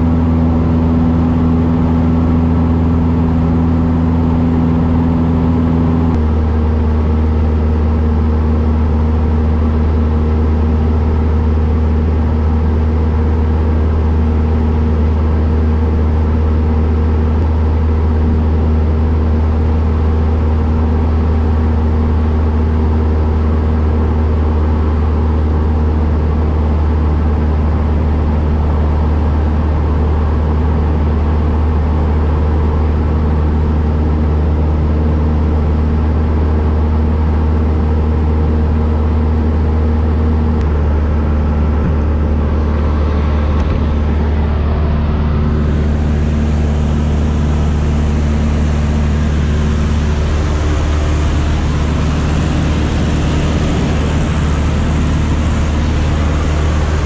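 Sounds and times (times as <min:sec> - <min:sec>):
propeller aircraft engine droning: 0:00.0 - 0:57.0.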